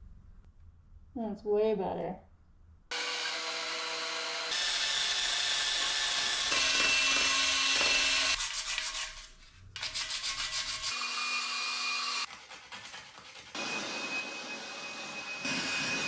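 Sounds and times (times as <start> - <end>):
power sander whirring: 2.9 - 8.4
hand-sanding strokes: 8.4 - 11.1, 12.0 - 13.7.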